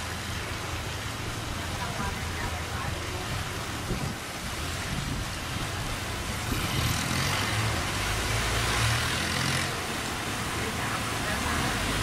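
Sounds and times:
boat engine droning: 0.0s - 12.0s
rushing water hiss: 0.0s - 12.0s.

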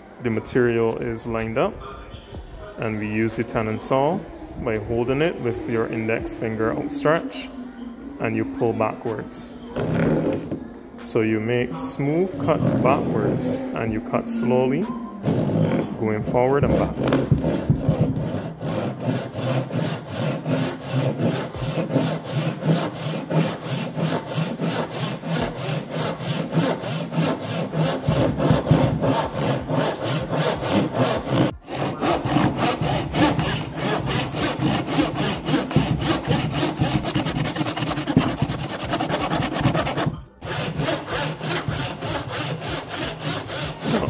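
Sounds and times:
hand saw cutting wood: 15.2s - 44.0s.

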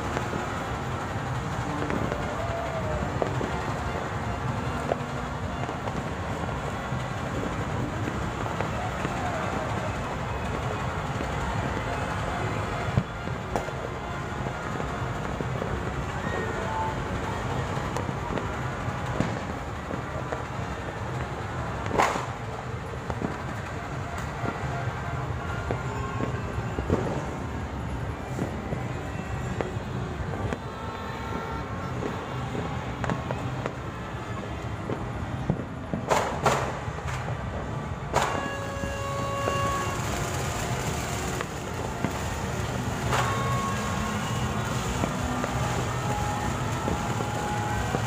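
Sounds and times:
city noise rumble: 0.0s - 48.0s
distant fireworks popping: 0.0s - 48.0s
loud firework bang: 21.8s - 22.5s, 35.5s - 37.3s, 38.1s - 48.0s.

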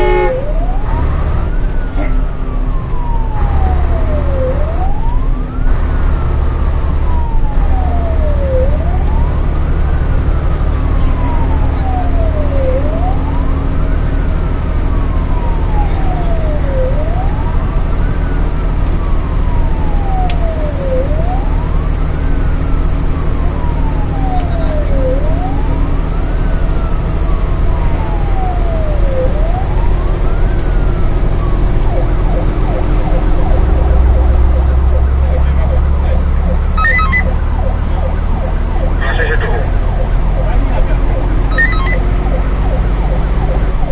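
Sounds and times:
fire engine siren wailing: 0.0s - 43.9s
truck engine drone: 0.0s - 43.9s.

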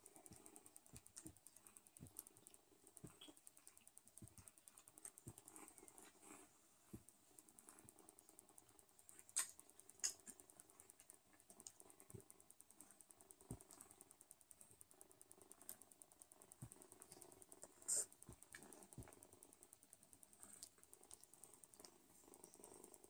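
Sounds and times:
kittens suckling: 0.0s - 23.0s
cat licking: 16.6s - 19.2s.

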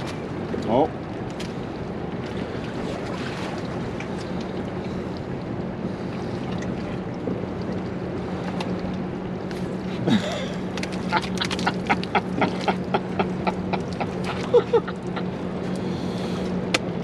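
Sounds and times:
wind on microphone: 0.0s - 15.7s
steady low hum: 0.0s - 17.0s
water lapping around boat: 0.0s - 17.0s.

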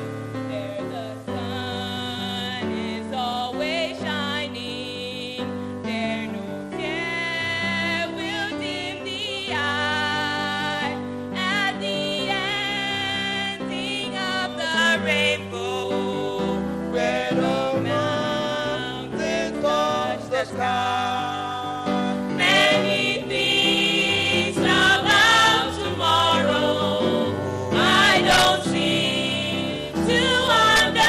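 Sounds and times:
gospel group singing: 0.0s - 31.0s
instrumental backing with bass: 15.6s - 31.0s.

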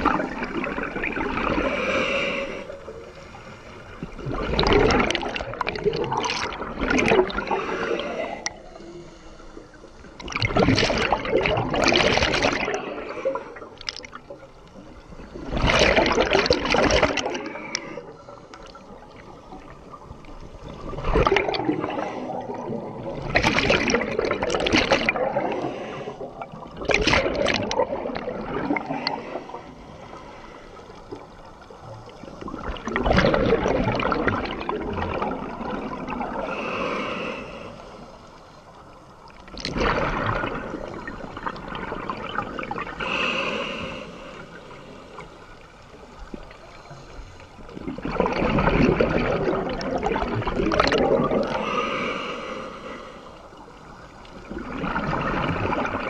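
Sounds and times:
underwater exhalation bubbles gurgling: 0.0s - 3.3s, 3.9s - 8.7s, 10.2s - 14.5s, 15.1s - 29.8s, 31.0s - 37.6s, 39.3s - 45.0s, 47.6s - 56.0s.

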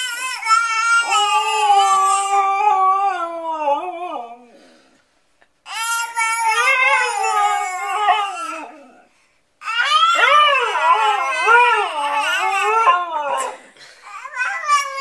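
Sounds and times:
dog howling: 9.7s - 13.6s.

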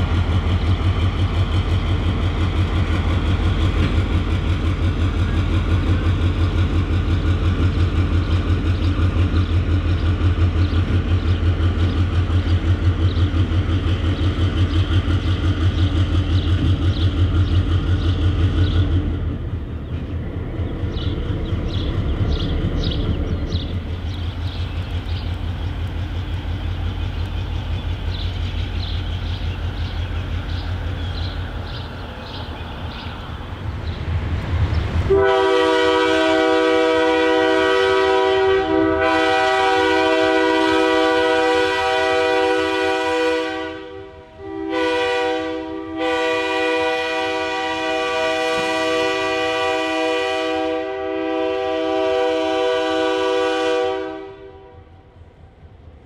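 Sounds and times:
diesel locomotive engine rumbling: 0.0s - 56.0s
train air horn blasts: 35.1s - 55.0s.

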